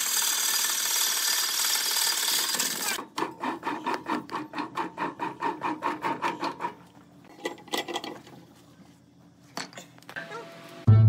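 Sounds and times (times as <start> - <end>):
tool scraping wood on a lathe: 2.6 - 6.9.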